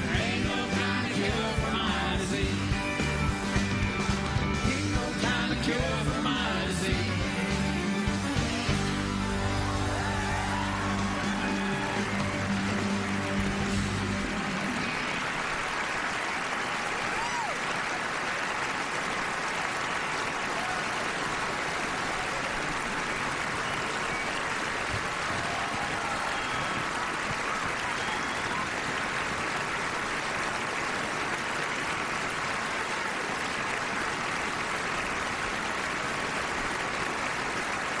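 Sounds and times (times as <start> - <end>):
audience applauding and cheering: 0.0 - 38.0
whistles: 23.1 - 24.8, 26.2 - 27.0, 27.8 - 28.8.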